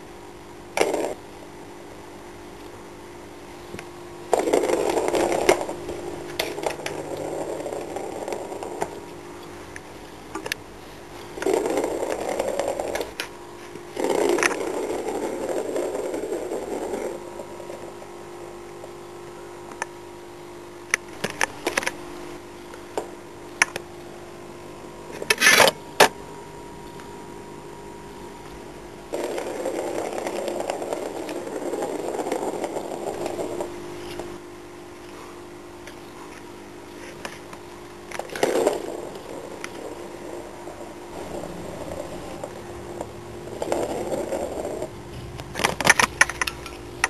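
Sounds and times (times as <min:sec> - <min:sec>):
plastic ball rolling in plastic track: 0:04.3 - 0:09.1, 0:11.4 - 0:18.5, 0:29.1 - 0:34.2, 0:38.0 - 0:44.9.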